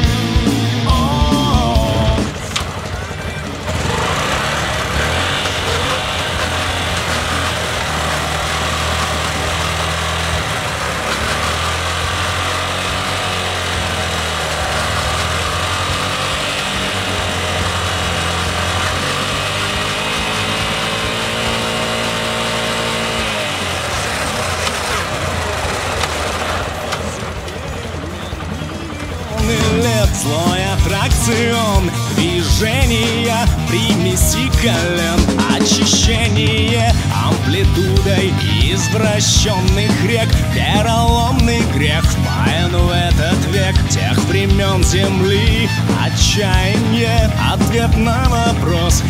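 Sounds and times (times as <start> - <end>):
motorcycle engine revving: 0.0 - 49.0.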